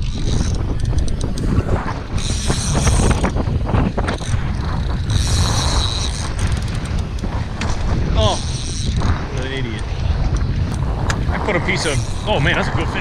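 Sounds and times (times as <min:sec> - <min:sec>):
fishing reel ticking whir: 0:00.0 - 0:12.8
wind buffeting microphone: 0:00.0 - 0:13.0.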